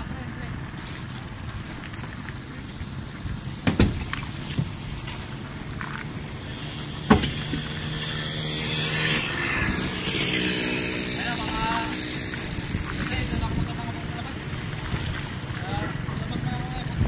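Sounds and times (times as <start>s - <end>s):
boat engine drone: 0.0s - 17.0s
sharp knocks: 3.6s - 4.8s, 7.0s - 7.8s.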